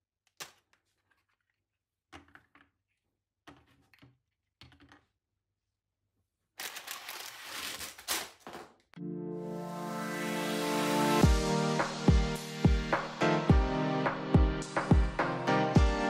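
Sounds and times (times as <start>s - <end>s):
plastic bag crinkling: 6.6s - 8.6s
music: 9.0s - 16.0s.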